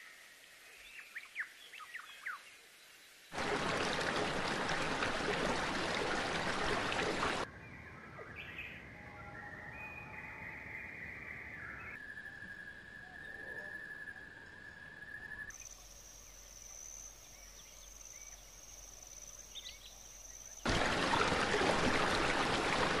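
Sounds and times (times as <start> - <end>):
duck splashing water: 3.3 - 7.5, 20.7 - 23.0
insect trills: 12.0 - 21.1.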